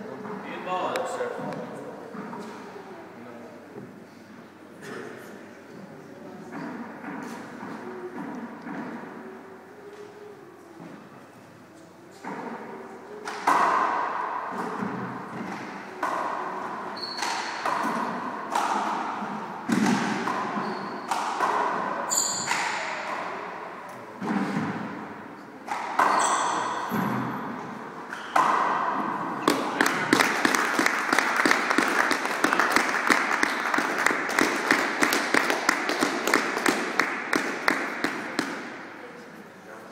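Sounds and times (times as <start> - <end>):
handball smacking in court: 17.0 - 22.8, 28.2 - 38.8
applause: 29.5 - 38.5.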